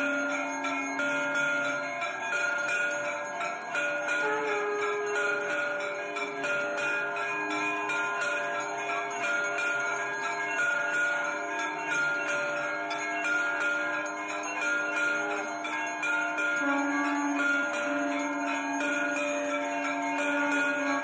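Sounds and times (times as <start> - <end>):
temple bells ringing: 0.0 - 21.0.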